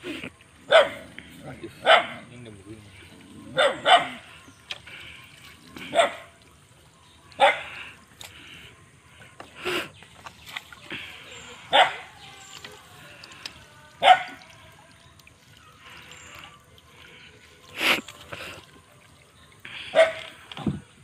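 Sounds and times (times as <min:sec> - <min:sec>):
water trickling and dripping: 0:02.3 - 0:21.0.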